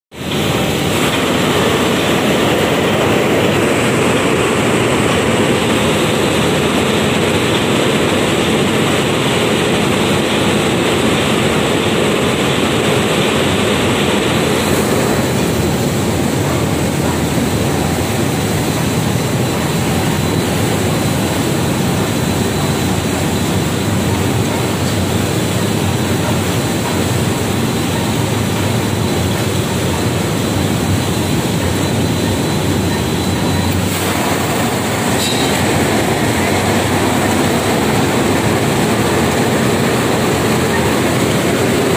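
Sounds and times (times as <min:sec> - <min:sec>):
loud mechanical din: 0:13.4 - 0:41.9.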